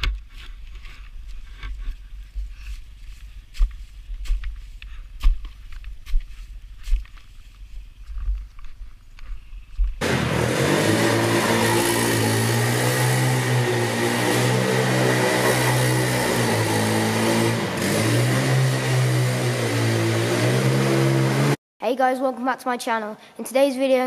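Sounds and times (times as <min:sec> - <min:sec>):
footsteps crunching in snow: 0:00.2 - 0:09.8
quad bike engine revving: 0:10.0 - 0:21.6.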